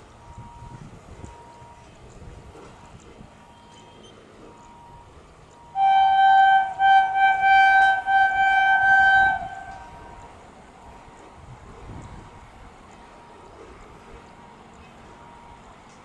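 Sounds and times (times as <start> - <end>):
locomotive horn blast: 4.6 - 10.3.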